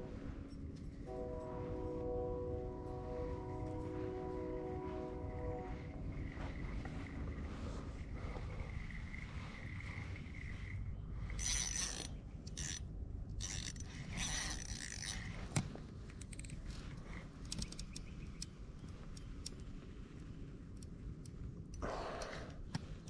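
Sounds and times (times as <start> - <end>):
fishing reel gears whirring: 11.3 - 15.4
reel clicks: 11.3 - 23.0.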